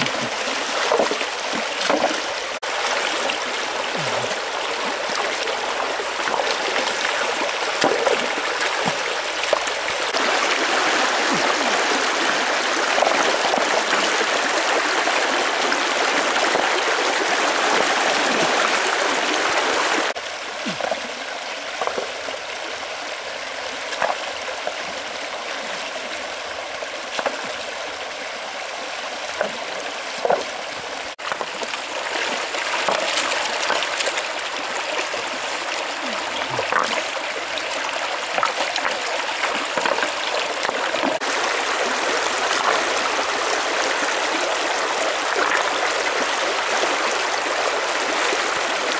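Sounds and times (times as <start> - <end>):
stones splashing in water: 0.0 - 14.1, 20.7 - 21.2, 21.8 - 22.2, 31.1 - 35.1, 36.0 - 37.2, 37.8 - 43.1, 45.2 - 46.3
rocky stream rushing: 0.0 - 48.9.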